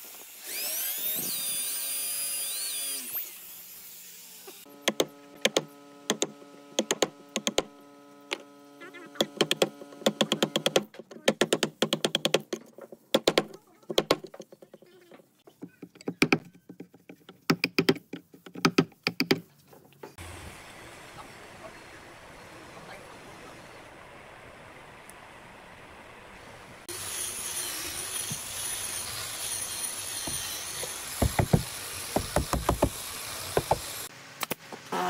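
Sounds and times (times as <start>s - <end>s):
chisel tapping and chipping wood: 4.9s - 7.7s, 9.2s - 14.8s, 15.6s - 19.5s, 30.2s - 33.9s.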